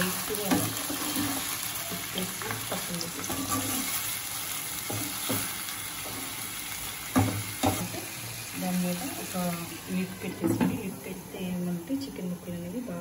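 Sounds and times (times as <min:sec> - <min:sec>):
chicken sizzling in oil: 0:00.0 - 0:11.3
spoon scraping a pan: 0:00.4 - 0:04.0.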